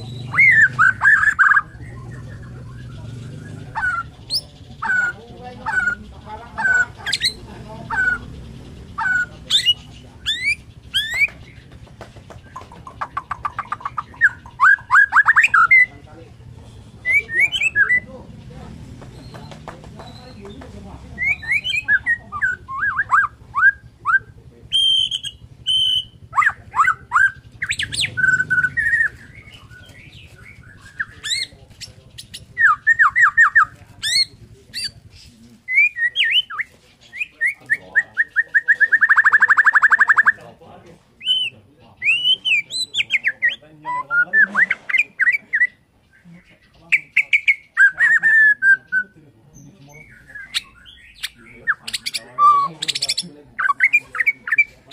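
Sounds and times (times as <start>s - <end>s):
bird singing whistled phrases: 0.0s - 8.3s, 9.0s - 11.5s, 13.1s - 16.0s, 17.0s - 18.1s, 21.2s - 31.6s, 35.7s - 40.4s, 41.2s - 45.8s, 46.9s - 49.2s, 50.0s - 54.8s.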